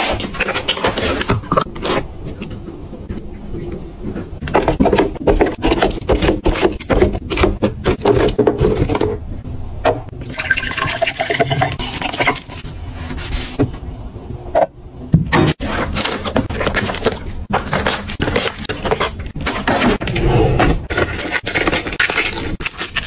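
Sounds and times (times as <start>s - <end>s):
milk pouring into a glass: 10.3s - 11.4s.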